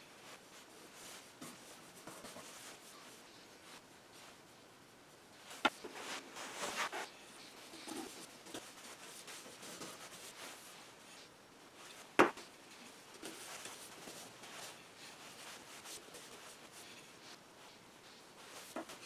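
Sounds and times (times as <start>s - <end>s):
paintbrush rubbing on wood: 13.3s - 19.0s.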